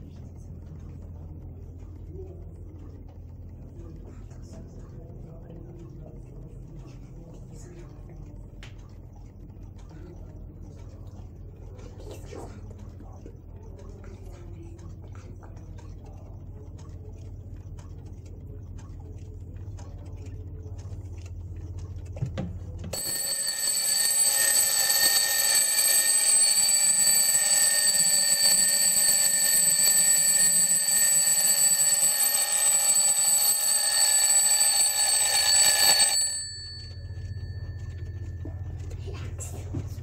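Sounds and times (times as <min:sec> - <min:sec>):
faint clocks ticking: 0:00.0 - 0:40.0
alarm clock bells ringing: 0:22.9 - 0:38.9.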